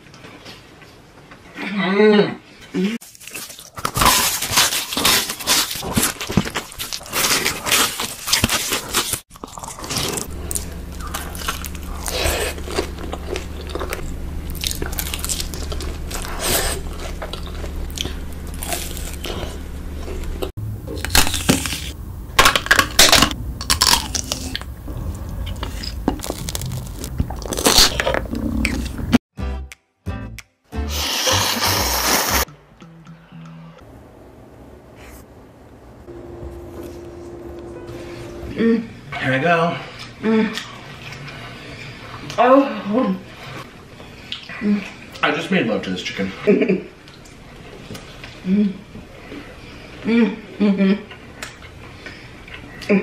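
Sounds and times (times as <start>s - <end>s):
crunchy bites and chewing: 3.1s - 29.2s
steady low hum: 9.4s - 29.2s, 32.5s - 45.2s.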